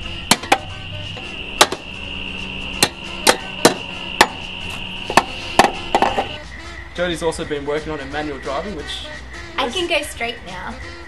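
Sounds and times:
hand tool knocking on metal: 1.6 - 1.9, 2.8 - 4.4, 5.1 - 6.4.

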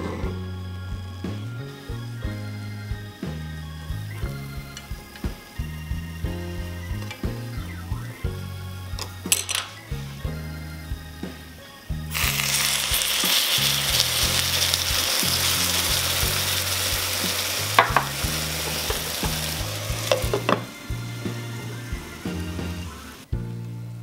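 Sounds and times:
soft background music: 0.0 - 24.0
water sizzling in hot oil: 12.1 - 23.2.

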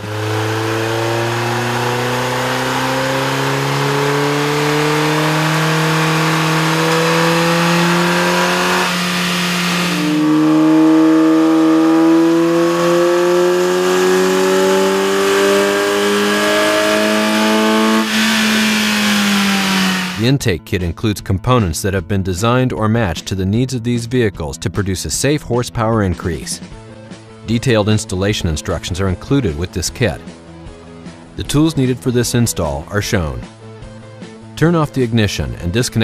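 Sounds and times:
car engine revving: 0.0 - 20.3.

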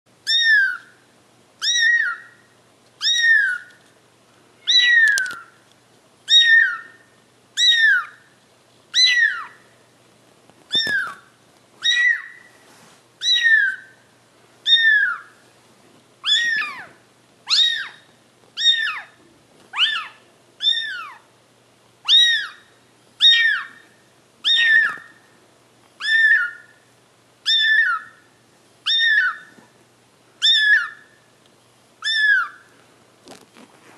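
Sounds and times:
kitten mewing: 16.2 - 18.0, 19.8 - 21.2, 24.5 - 25.1.

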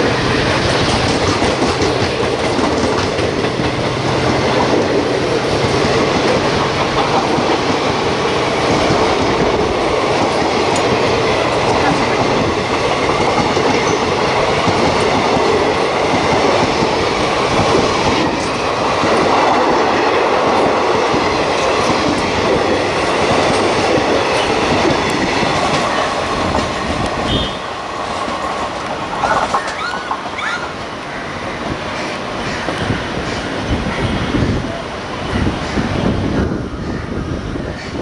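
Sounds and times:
train wheels clattering over rails: 0.0 - 38.0.

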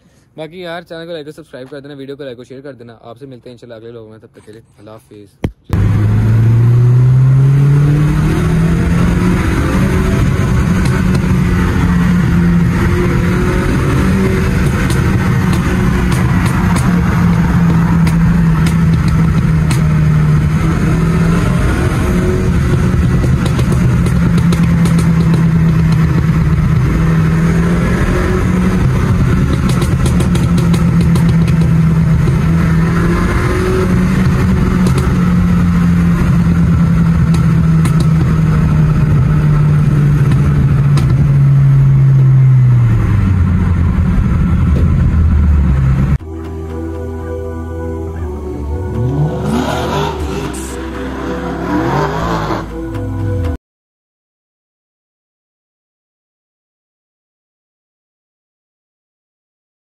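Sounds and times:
road noise: 0.0 - 53.6
car engine drone inside cabin: 5.7 - 53.6.

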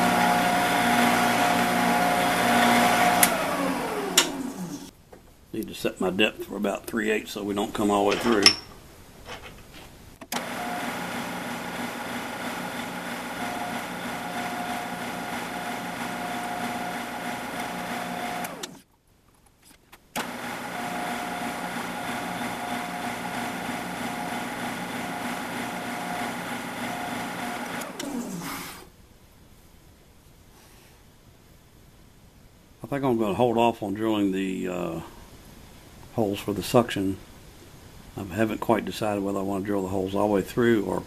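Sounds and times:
drill press motor running: 0.0 - 4.9, 10.4 - 18.8, 20.2 - 28.9.

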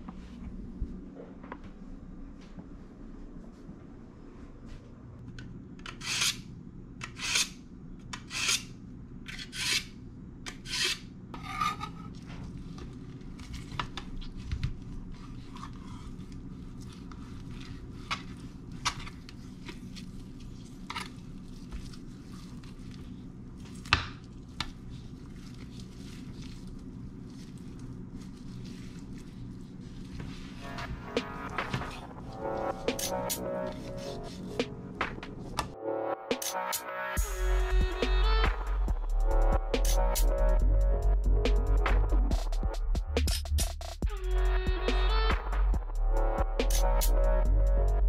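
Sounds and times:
low steady hum: 0.0 - 36.2.

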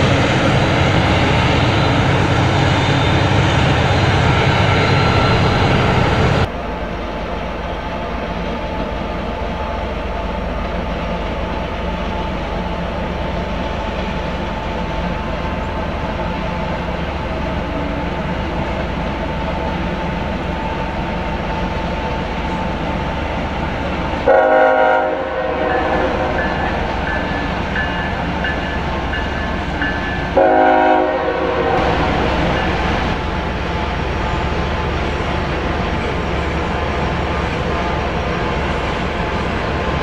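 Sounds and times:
diesel locomotive engine drone: 0.0 - 40.0
locomotive horn blast: 24.3 - 26.8, 30.4 - 32.3.

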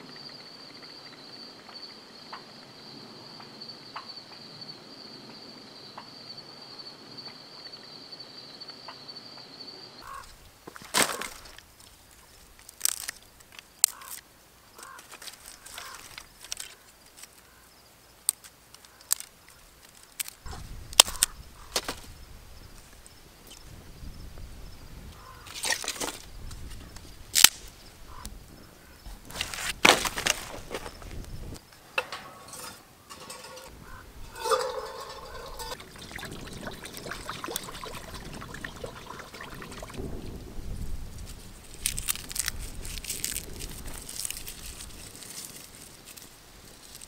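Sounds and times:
insect trilling: 10.0 - 10.3, 12.3 - 17.8, 32.5 - 40.2
dry twigs snapping: 10.7 - 14.2, 18.3 - 22.1, 27.3 - 27.7, 29.1 - 31.4, 41.6 - 46.3.

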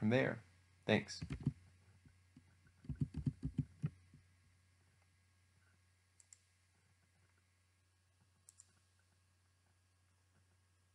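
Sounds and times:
faint low hum: 0.0 - 10.9
computer mouse clicks: 1.2 - 1.6, 2.8 - 4.0, 6.2 - 6.5, 8.4 - 8.8.

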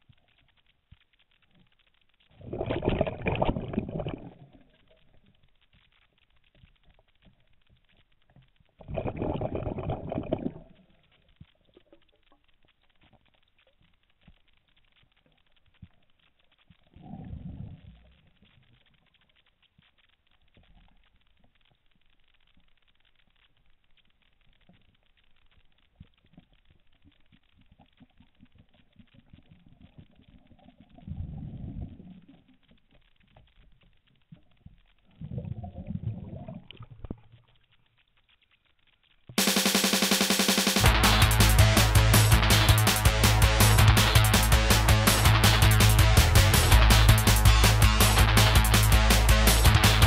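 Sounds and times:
faint clicks: 0.0 - 2.5, 3.2 - 9.2, 9.8 - 39.4
underwater bubbles rushing: 2.4 - 4.9, 8.8 - 10.9.

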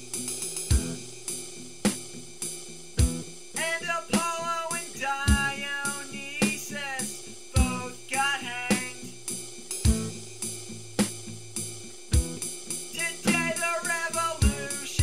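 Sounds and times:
drum kit beat: 0.0 - 15.0.

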